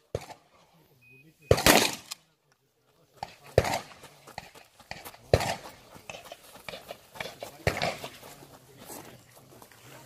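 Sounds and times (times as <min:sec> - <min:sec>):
shotgun shots: 0:01.5 - 0:02.2, 0:03.2 - 0:05.6, 0:07.6 - 0:08.1.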